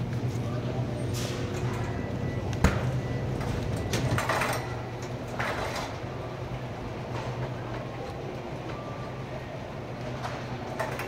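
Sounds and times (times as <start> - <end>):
steady low hum: 0.0 - 11.0
shopping cart rattling: 3.3 - 6.2, 10.0 - 11.0.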